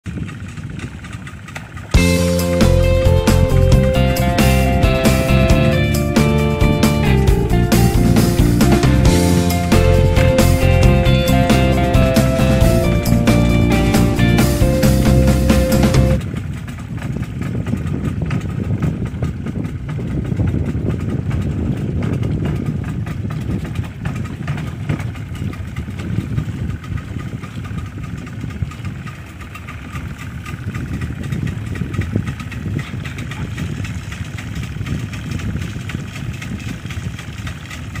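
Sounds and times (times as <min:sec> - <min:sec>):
boat engine rumbling: 0:00.0 - 0:38.0
water noise: 0:00.0 - 0:38.0
wind: 0:00.0 - 0:38.0
music: 0:02.0 - 0:16.2.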